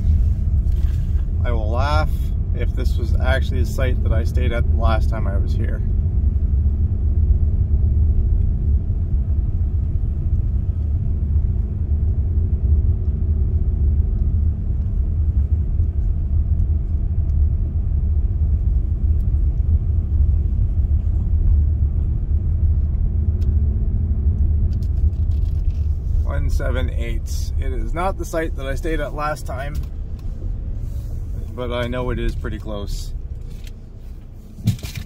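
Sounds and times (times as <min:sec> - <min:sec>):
truck engine rumble in cab: 0:00.0 - 0:35.0.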